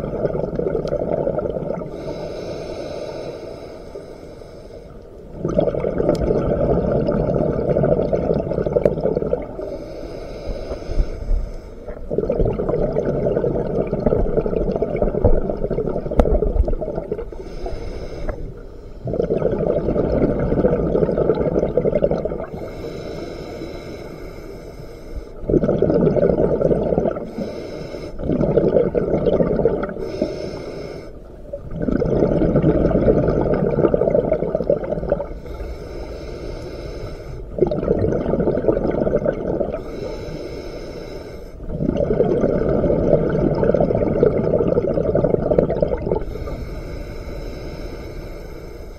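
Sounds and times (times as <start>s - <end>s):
exhaled air bubbling underwater: 0.0s - 48.9s
regulator inhale hiss: 1.9s - 5.3s, 9.6s - 12.1s, 17.2s - 19.1s, 22.5s - 25.5s, 27.2s - 28.3s, 30.0s - 31.4s, 35.3s - 37.6s, 39.8s - 41.7s, 46.2s - 48.9s.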